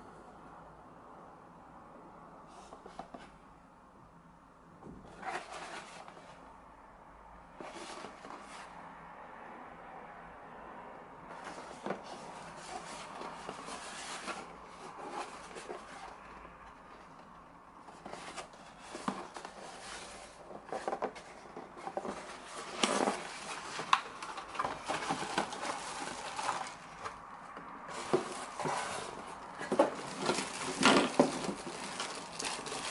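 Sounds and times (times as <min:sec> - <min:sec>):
cardboard box rustling: 0:05.1 - 0:06.4, 0:07.6 - 0:08.7, 0:11.3 - 0:32.9.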